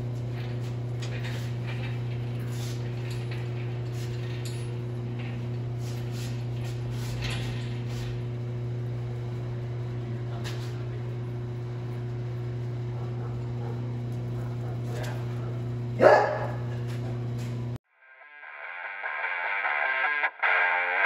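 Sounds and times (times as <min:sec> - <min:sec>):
low electrical hum: 0:00.0 - 0:17.8
dog barking: 0:12.9 - 0:16.9.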